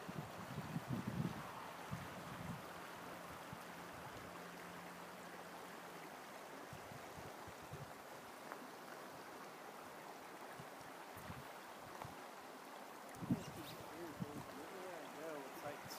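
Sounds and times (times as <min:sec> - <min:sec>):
river flowing: 0:00.0 - 0:15.9.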